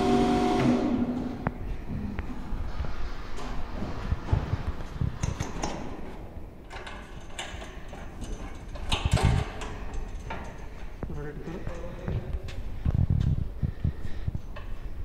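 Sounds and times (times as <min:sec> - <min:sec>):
metallic clicks and knocks: 0:04.2 - 0:12.2.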